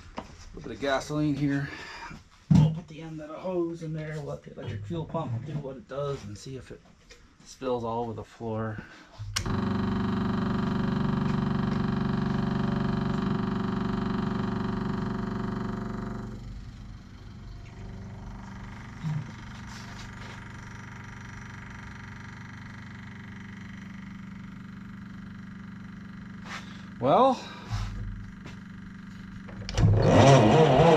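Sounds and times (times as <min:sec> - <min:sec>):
electric fuel pump buzzing: 0:09.2 - 0:30.9.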